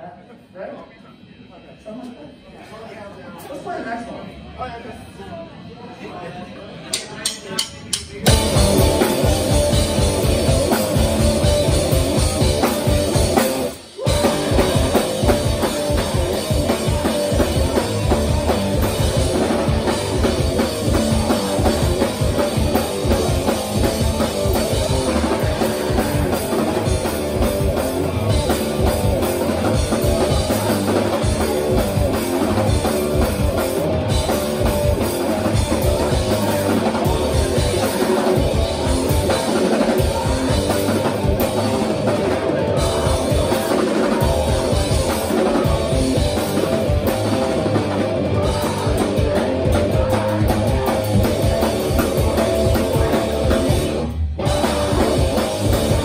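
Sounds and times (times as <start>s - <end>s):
drum kit: 6.9s - 56.0s
distorted electric guitars: 7.8s - 56.0s
bass guitar: 8.2s - 56.0s.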